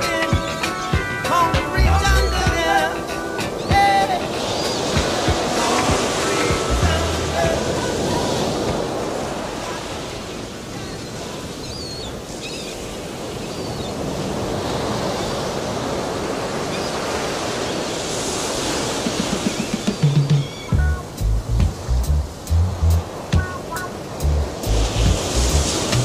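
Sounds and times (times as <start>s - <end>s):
reggae bass and drums: 0.0s - 7.7s, 19.1s - 26.0s
ocean waves washing in: 0.0s - 26.0s.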